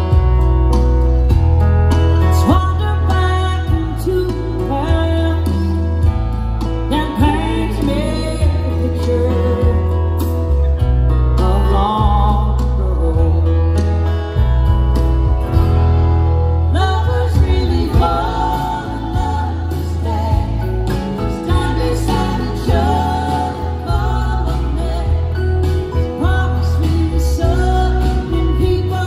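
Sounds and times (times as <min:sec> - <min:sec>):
live country band music: 0:00.0 - 0:29.0
woman singing: 0:02.3 - 0:10.2, 0:11.4 - 0:13.9, 0:16.7 - 0:29.0.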